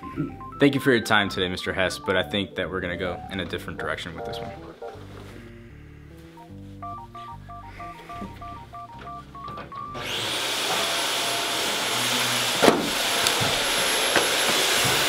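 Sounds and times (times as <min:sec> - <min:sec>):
electronic beeping tune: 0:06.8 - 0:10.1
vacuum cleaner running: 0:09.9 - 0:15.0.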